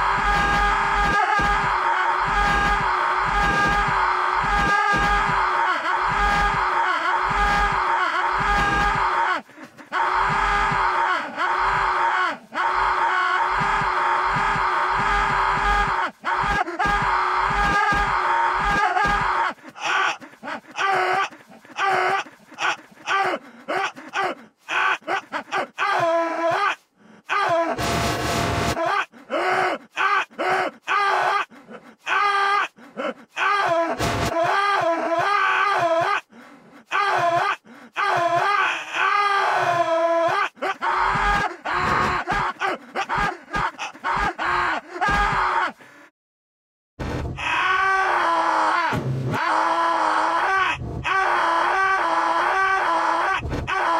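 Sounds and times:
cartoon man groaning in pain: 0.0s - 26.6s, 36.9s - 45.8s.

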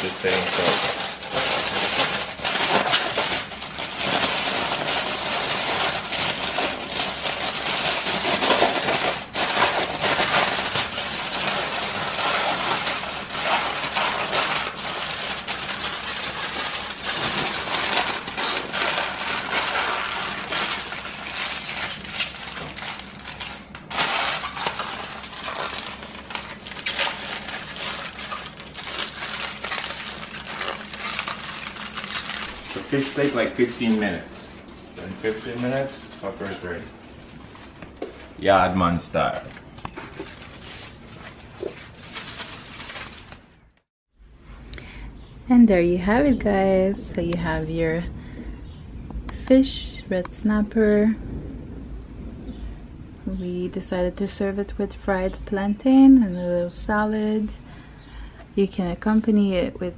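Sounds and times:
aluminium foil crinkling: 0.0s - 43.8s.

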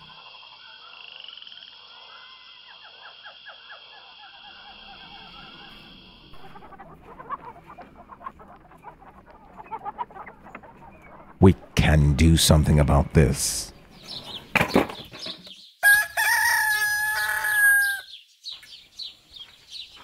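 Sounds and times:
high droning animal calls: 0.0s - 14.6s.

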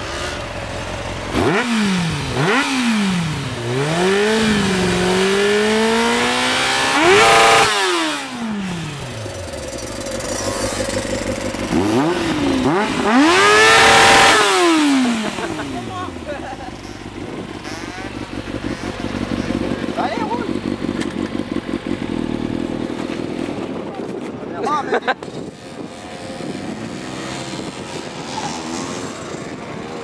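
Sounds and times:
motorcycle engine revving: 0.0s - 24.5s, 25.2s - 30.0s.

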